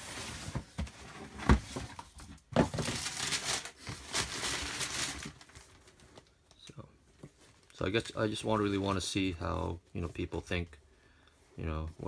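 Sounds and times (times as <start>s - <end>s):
packaging crinkling and rustling: 0.0s - 6.4s.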